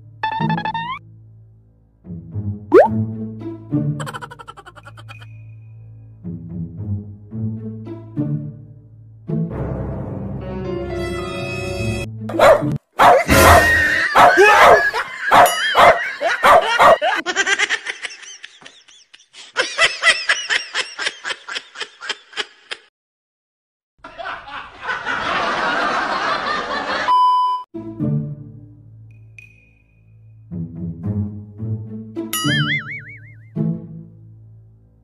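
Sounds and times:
person laughing: 4.0 - 5.3, 13.6 - 22.9
short steady beep: 27.1 - 27.6.

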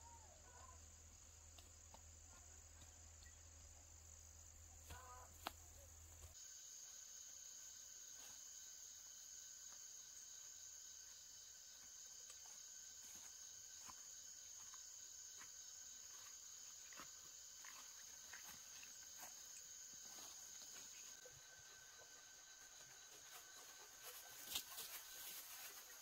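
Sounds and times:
high-pitched insect chorus: 0.0 - 26.0
footsteps through tall grass: 11.8 - 21.2, 22.9 - 26.0.

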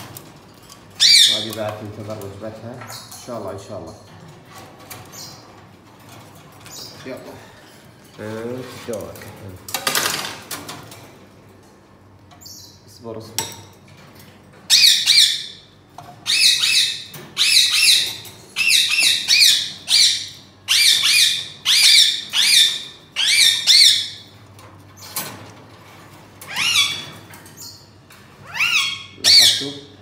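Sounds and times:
parakeet squawking: 1.0 - 1.5, 14.7 - 24.2, 26.5 - 27.8, 28.4 - 30.0.

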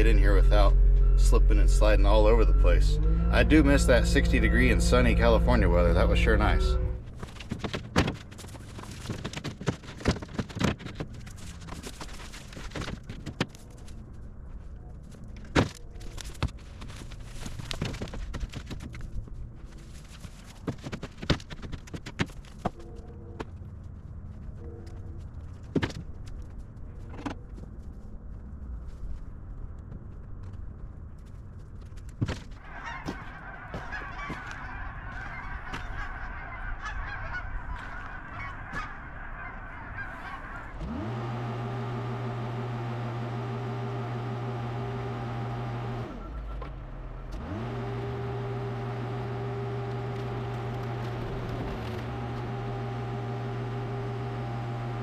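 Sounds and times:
forklift engine drone: 0.0 - 7.4, 38.6 - 55.0.

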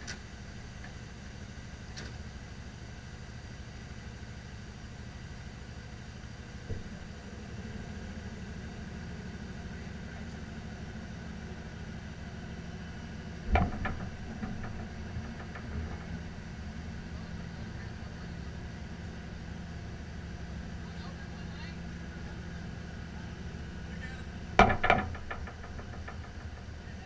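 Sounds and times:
truck engine idling: 0.0 - 27.0
sharp knocks: 6.7 - 7.1, 13.5 - 16.3, 24.6 - 26.9.

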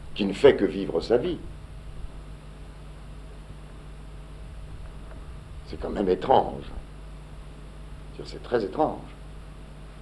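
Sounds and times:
old recording hiss and hum: 0.0 - 10.0.

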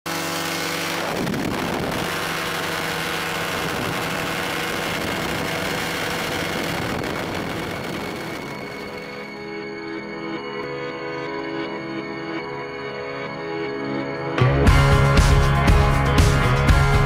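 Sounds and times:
paratrike engine and propeller: 0.1 - 11.2.

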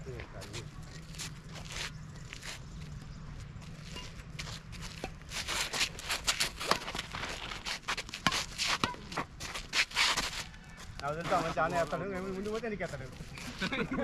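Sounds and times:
shoes scuffing on gritty ground: 0.1 - 14.0
racket hitting shuttlecock: 5.0 - 10.3.

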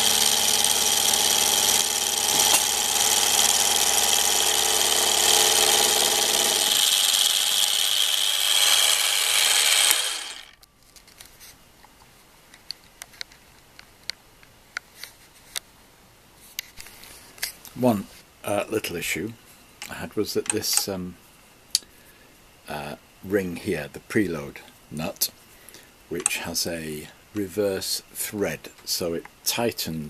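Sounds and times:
milling machine cutting metal: 0.0 - 10.6.

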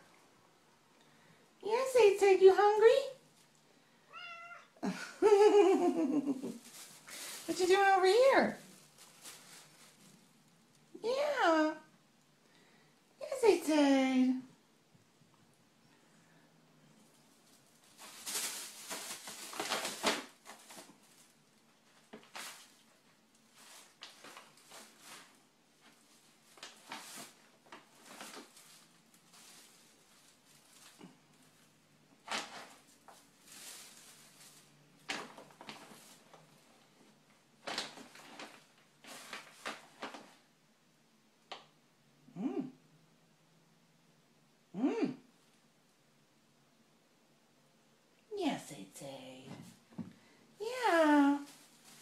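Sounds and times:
plastic bags rustling: 5.2 - 11.0, 17.0 - 40.5, 49.6 - 52.0.

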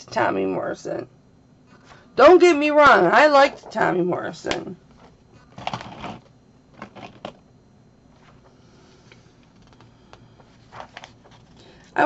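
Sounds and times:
paper rustling: 10.5 - 11.6.

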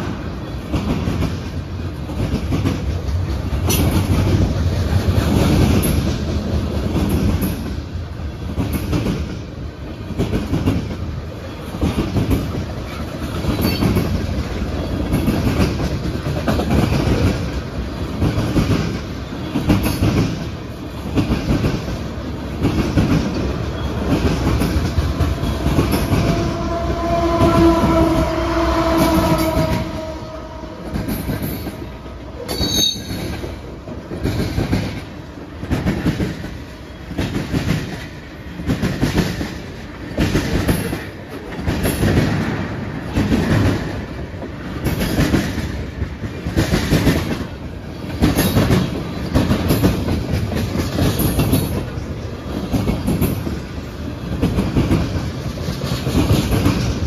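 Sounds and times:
freight train wheels clacking: 0.0 - 57.0
high-pitched wheel squeal: 25.4 - 31.7, 32.4 - 33.3.

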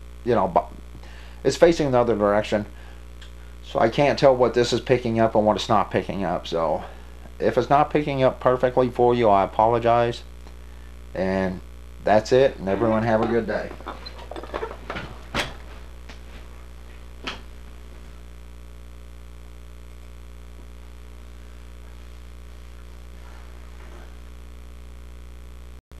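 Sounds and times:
low electrical hum: 0.0 - 25.8
sharp clicks and knocks: 13.2 - 16.2.

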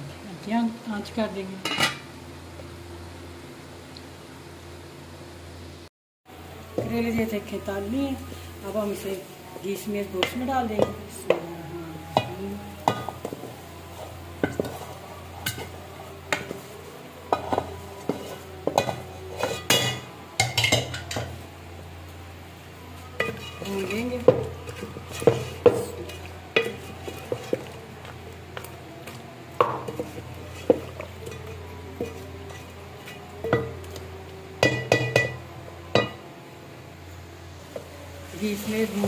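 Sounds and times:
light sizzle: 0.0 - 39.0
wooden spoon scraping a pot: 12.1 - 21.4, 23.0 - 35.4.

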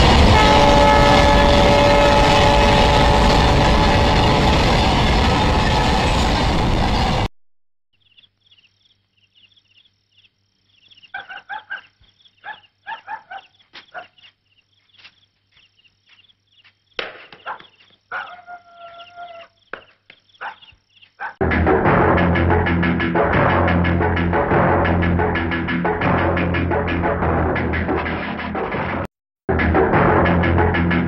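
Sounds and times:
animal high chirps: 10.8 - 14.4, 17.3 - 21.4
loud pitched animal calls: 11.0 - 14.2, 17.3 - 19.6
long drawn-out animal call: 18.1 - 19.6.

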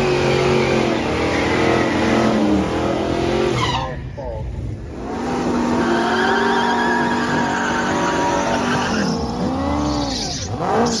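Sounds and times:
car engine revving: 0.0 - 11.0
tyres squealing: 5.8 - 11.0.

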